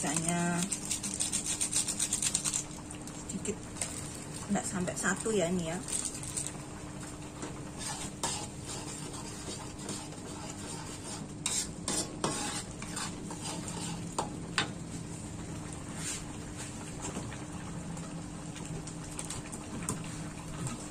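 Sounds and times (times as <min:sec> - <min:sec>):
paste frying with light sizzle: 0:00.0 - 0:20.9
spatula scraping in a steel wok: 0:07.7 - 0:14.3.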